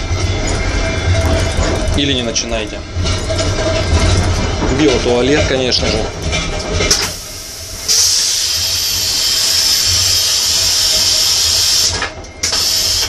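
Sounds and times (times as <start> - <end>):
toilet flush hissing: 7.0 - 13.0.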